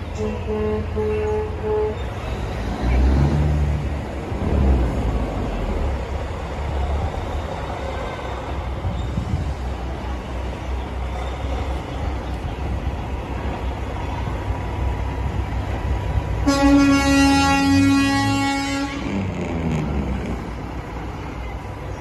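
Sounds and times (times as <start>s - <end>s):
trucks rumbling past: 0.0s - 22.0s
truck horn blast: 0.2s - 2.4s, 16.4s - 20.4s.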